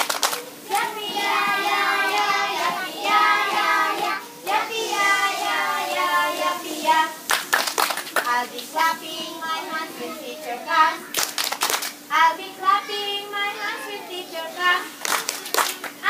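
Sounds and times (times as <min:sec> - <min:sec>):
hand claps: 0:00.0 - 0:00.9, 0:07.3 - 0:08.7, 0:11.1 - 0:12.0, 0:15.0 - 0:16.0
children singing in unison: 0:00.5 - 0:07.3, 0:08.3 - 0:11.0.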